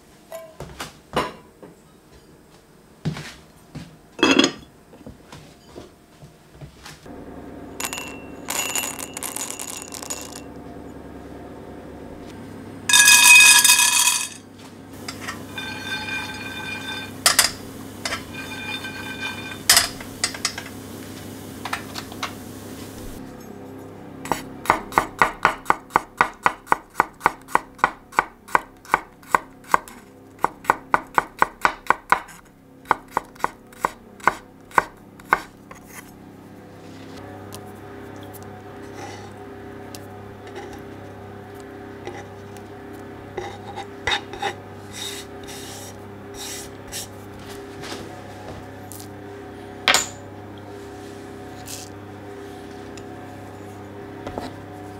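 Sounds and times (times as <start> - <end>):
crockery clinking and rattling: 4.2 - 4.6, 7.8 - 10.4, 12.9 - 14.4, 15.0 - 20.6
frying pan rattling: 12.9 - 14.4.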